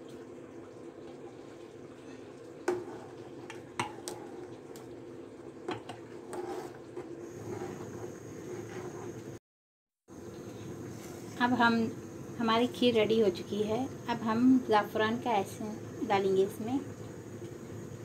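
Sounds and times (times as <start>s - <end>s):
ladle stirring thick pudding: 2.2s - 9.4s
metal ladle knocking against pot: 5.7s - 6.0s.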